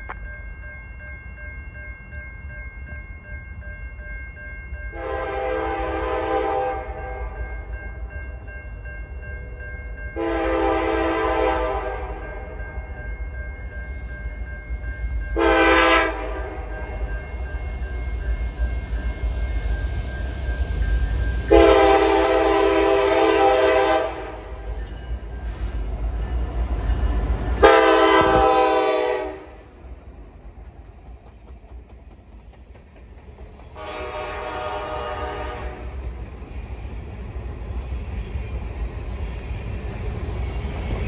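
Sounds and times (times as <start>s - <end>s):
train cars rumbling and clattering: 0.0s - 41.0s
locomotive air horn blasts: 4.9s - 7.3s, 10.2s - 12.2s, 15.4s - 16.6s, 21.5s - 24.4s, 27.6s - 29.7s, 33.8s - 36.0s.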